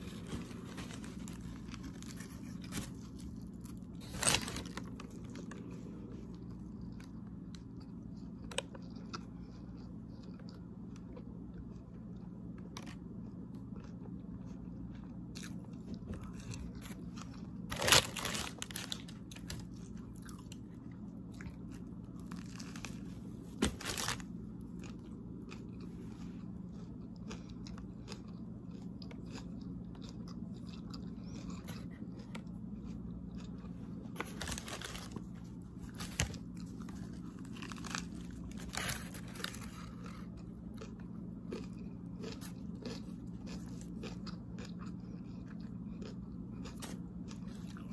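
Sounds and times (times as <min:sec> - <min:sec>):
paper wrapper crackles: 0:00.0 - 0:05.8, 0:16.8 - 0:19.9, 0:22.2 - 0:24.3, 0:34.1 - 0:40.2
person chewing sandwich: 0:00.0 - 0:47.9.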